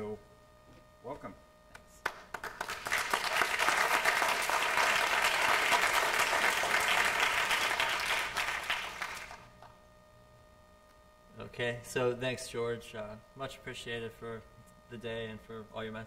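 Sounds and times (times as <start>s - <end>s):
audience applauding: 2.0s - 9.5s.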